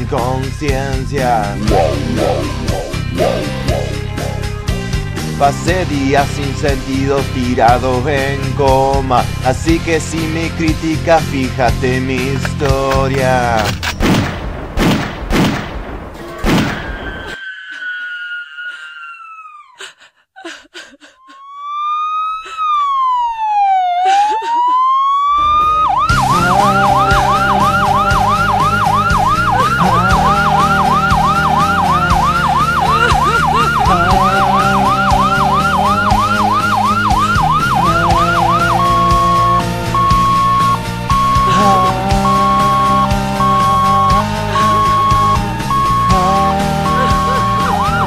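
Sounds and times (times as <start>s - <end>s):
band music: 1.1s - 13.3s, 25.5s - 48.0s
slow siren wail: 1.3s - 5.4s, 16.2s - 19.8s, 21.2s - 48.0s
fast yelping siren: 1.6s - 4.8s, 16.9s - 19.8s, 21.2s - 48.0s.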